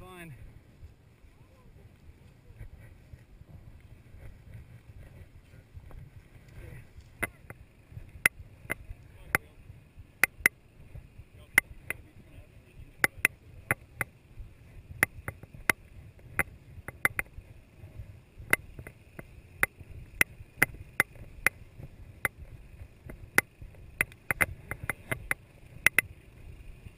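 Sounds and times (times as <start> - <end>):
gear clicking and knocking: 10.2 - 12.1, 12.9 - 26.9.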